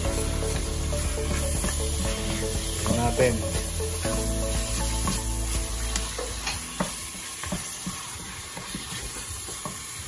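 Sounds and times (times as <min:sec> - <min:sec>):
meat and onions sizzling: 0:00.0 - 0:10.0
wooden spoon scraping a pot: 0:04.6 - 0:10.0.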